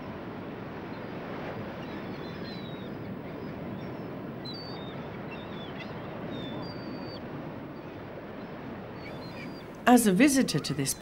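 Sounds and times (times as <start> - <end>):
small birds chirping: 7.8 - 11.0.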